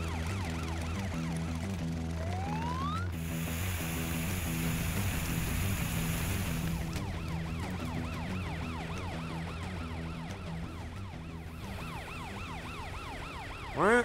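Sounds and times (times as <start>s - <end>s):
background music: 0.0s - 14.0s
cartoon police siren wailing: 2.2s - 3.2s, 6.6s - 14.0s
hiss of water spray: 3.2s - 7.0s.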